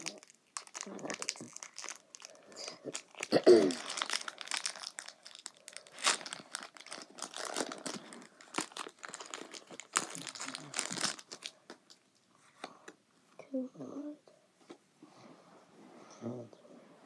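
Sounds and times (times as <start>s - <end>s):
foil wrapper crinkling and tearing: 0.0s - 12.0s.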